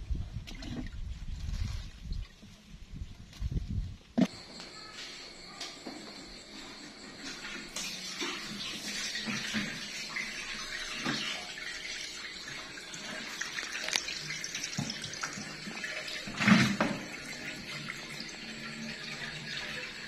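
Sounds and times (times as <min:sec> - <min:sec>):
water running from a tap: 0:06.3 - 0:20.0.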